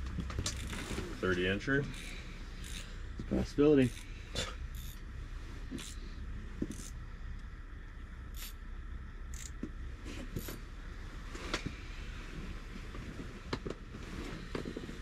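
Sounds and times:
steady low rumble: 0.0 - 15.0
sleeping bag rustling: 0.2 - 1.2.

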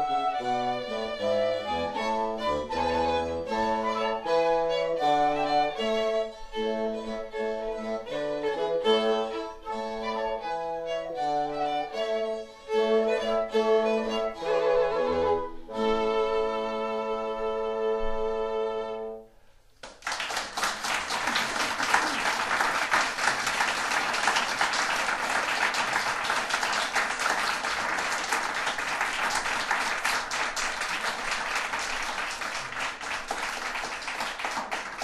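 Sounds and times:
audience applauding: 19.8 - 35.0.

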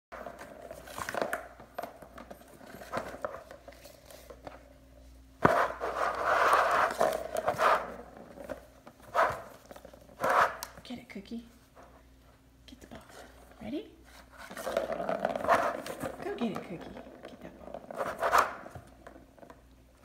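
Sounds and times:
plastic ball rattling: 14.5 - 19.5.

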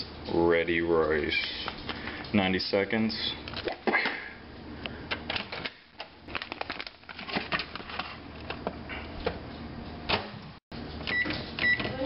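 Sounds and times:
plastic pouch crinkling: 6.3 - 8.3.

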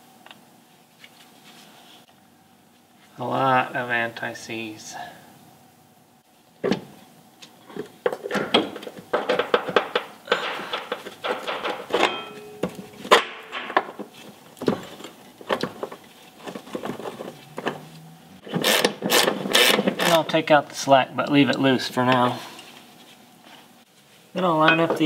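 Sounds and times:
metal clinks and scraping: 10.3 - 13.8.

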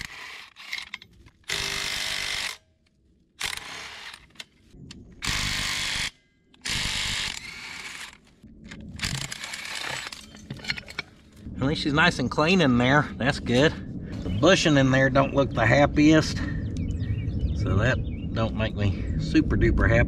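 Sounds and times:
handheld power tool running: 0.0 - 2.6, 3.4 - 4.4, 5.2 - 8.2.

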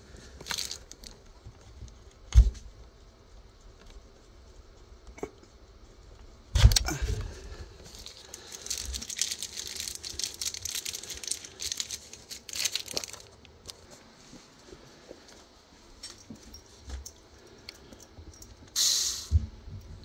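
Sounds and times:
clicking rattling and crinkling: 0.4 - 14.0.

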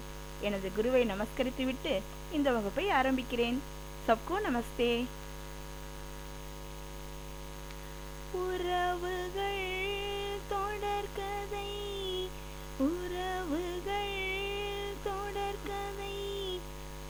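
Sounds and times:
electrical mains hum: 0.0 - 17.0
woman singing long notes: 8.3 - 16.7.

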